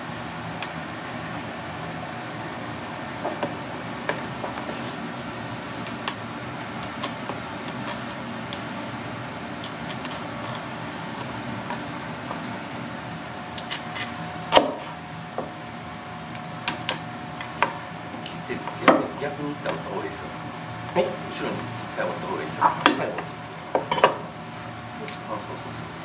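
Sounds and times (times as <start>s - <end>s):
steady background hum: 0.0s - 26.0s
knife clicking on crab shells: 6.8s - 8.6s.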